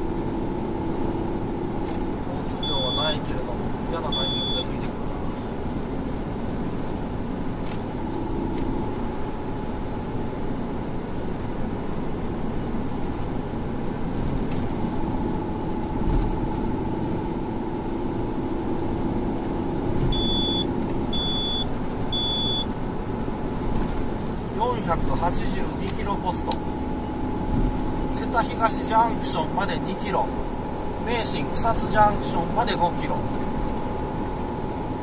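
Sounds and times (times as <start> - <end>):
faint constant hum: 0.0 - 35.0
tyre and road noise: 0.0 - 35.0
short high-pitched beeps: 2.6 - 3.3, 4.1 - 4.8, 20.1 - 22.7.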